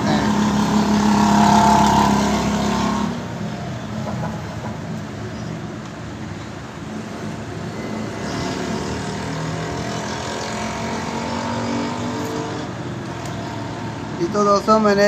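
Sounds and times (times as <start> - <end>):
engine droning: 0.0 - 4.8.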